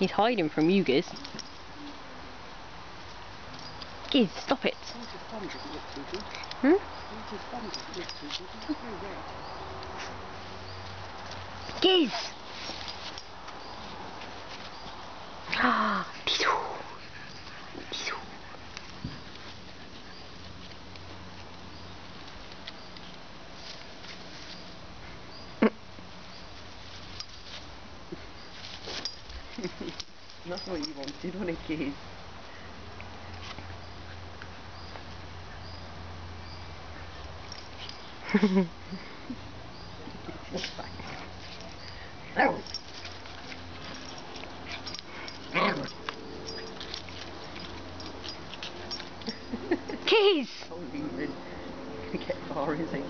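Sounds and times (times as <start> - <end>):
faint rustles and clicks: 0.0 - 2.2, 3.0 - 16.3, 16.9 - 35.7, 36.5 - 50.8.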